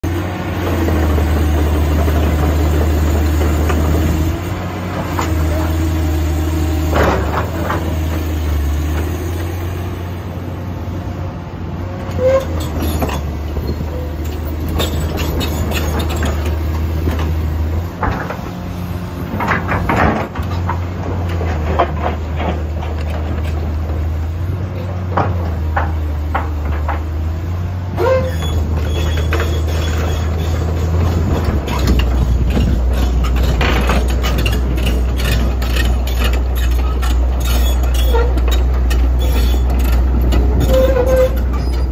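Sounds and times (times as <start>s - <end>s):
excavator diesel engine drone: 0.0s - 41.9s
metallic clanks and squeals of tracks: 12.0s - 23.9s, 27.9s - 41.9s.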